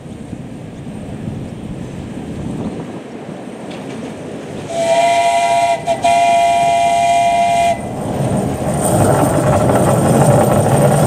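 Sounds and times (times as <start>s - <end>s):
steam locomotive whistle: 4.6s - 8.2s.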